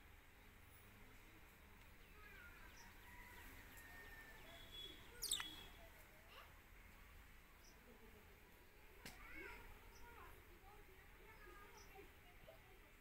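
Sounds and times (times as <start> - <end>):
budgerigar chattering: 5.2 - 5.7.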